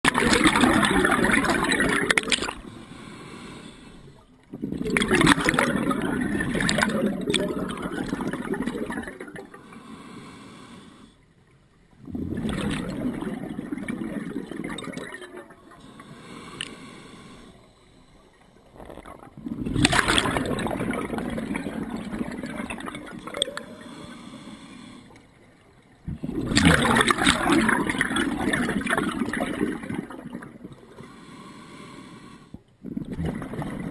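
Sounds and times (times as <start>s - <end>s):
exhaled bubbles bursting: 0.0s - 2.7s, 4.4s - 9.6s, 12.0s - 15.8s, 18.7s - 23.8s, 26.0s - 30.9s, 32.8s - 33.9s
diver breathing underwater: 0.2s - 11.3s, 12.0s - 25.4s, 26.1s - 33.9s.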